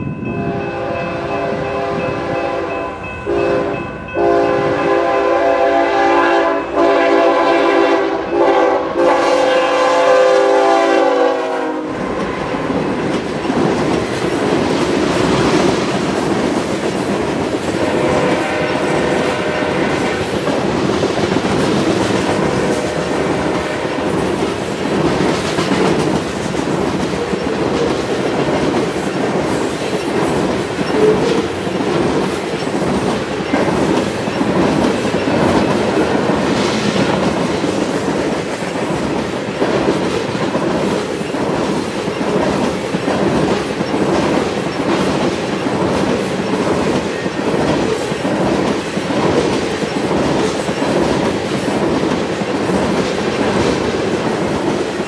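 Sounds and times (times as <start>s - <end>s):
train rolling over crossing: 0.0s - 55.0s
locomotive air horn blasts: 0.4s - 12.1s, 17.8s - 20.3s, 23.4s - 24.0s.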